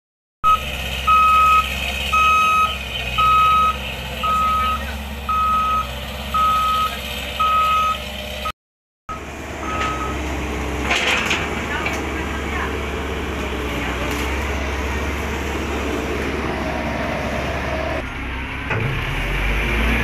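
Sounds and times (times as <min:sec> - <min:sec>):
reversing alarm beeps: 0:00.4 - 0:08.0, 0:09.1 - 0:10.2
diesel engine hum: 0:00.4 - 0:20.0.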